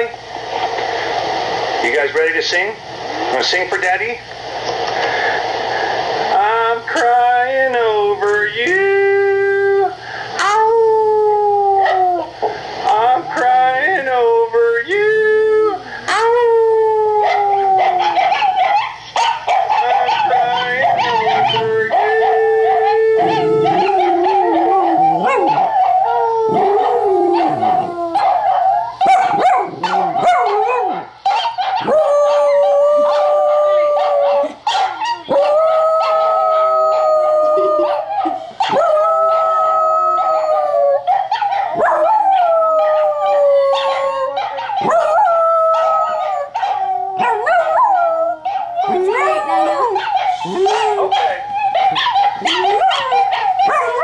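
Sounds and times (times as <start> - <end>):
dog howling: 9.6 - 12.4, 15.2 - 54.0
puppy sounds from video: 16.0 - 39.6, 40.2 - 54.0.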